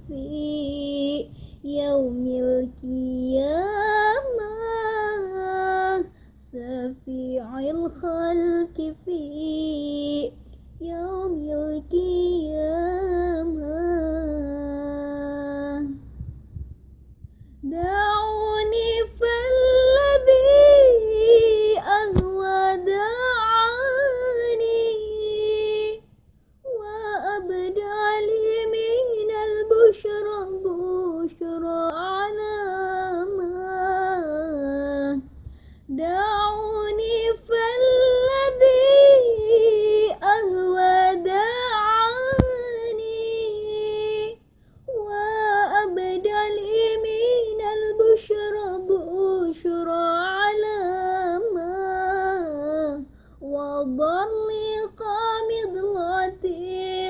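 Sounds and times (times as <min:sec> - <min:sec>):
woman singing unaccompanied: 0:00.0 - 0:16.1, 0:17.6 - 0:35.3, 0:35.9 - 0:57.0
sharp click: 0:42.3 - 0:42.6.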